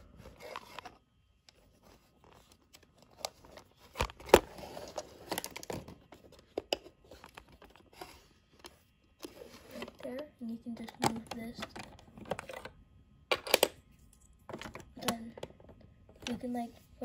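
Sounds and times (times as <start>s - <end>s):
hands handling plastic bricks: 0.1s - 10.2s.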